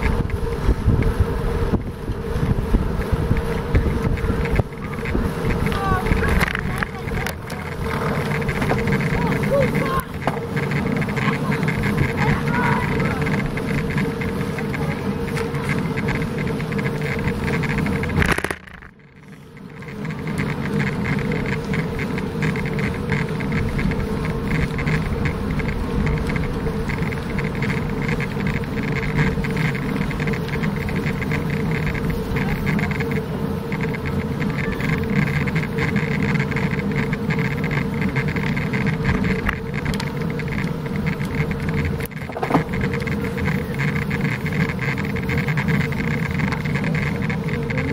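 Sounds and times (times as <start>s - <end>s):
wind rushing over microphone: 0.0s - 19.1s
bicycle tyres on paved road: 0.0s - 47.9s.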